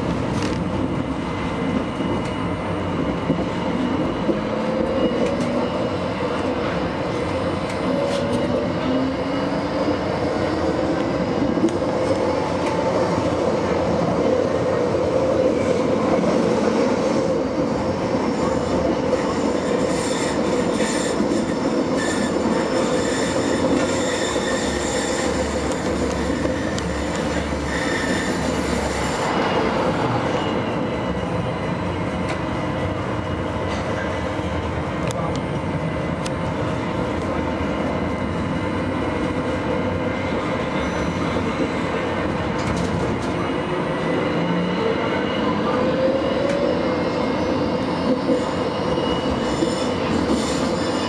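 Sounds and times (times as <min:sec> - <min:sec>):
tram rolling on track: 0:00.0 - 0:51.0.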